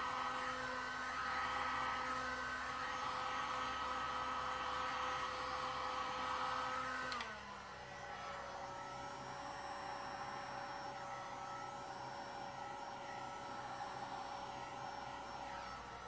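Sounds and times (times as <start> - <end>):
heat gun fan whirring: 0.0 - 16.0
heat gun switch click: 7.1 - 7.3.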